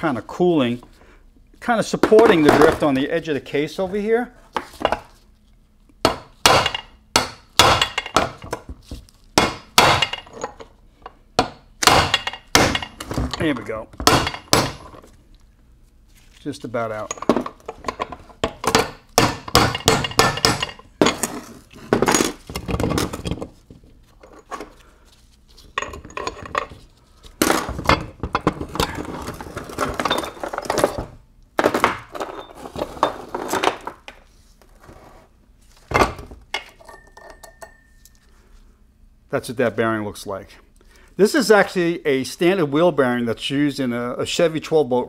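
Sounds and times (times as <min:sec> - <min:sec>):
metal parts clinking and clanking: 0:10.0 - 0:10.8, 0:16.9 - 0:19.1, 0:25.6 - 0:26.8, 0:27.4 - 0:31.1
hammer striking metal: 0:18.7 - 0:20.8.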